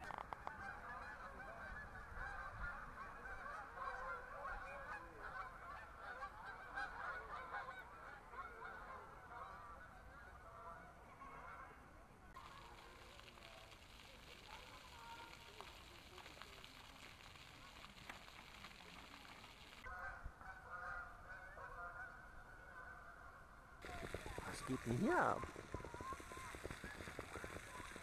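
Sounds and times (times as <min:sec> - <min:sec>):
geese honking: 0:00.6 - 0:10.5, 0:18.9 - 0:28.0.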